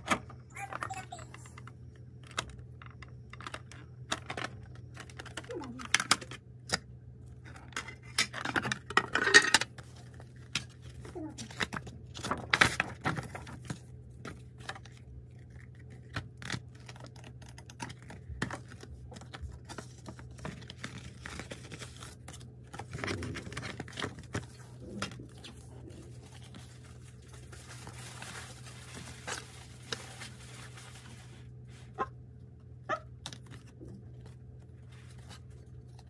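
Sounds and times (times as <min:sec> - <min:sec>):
card and paper rustling: 0:09.7 - 0:32.0, 0:33.0 - 0:36.0.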